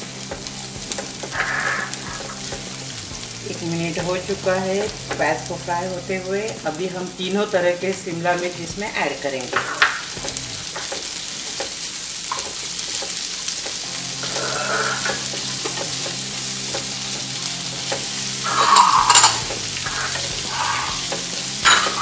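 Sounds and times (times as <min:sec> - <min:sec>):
vegetables sizzling in hot oil: 0:00.0 - 0:22.0
wooden spatula scraping a pan: 0:00.3 - 0:05.3, 0:12.3 - 0:22.0.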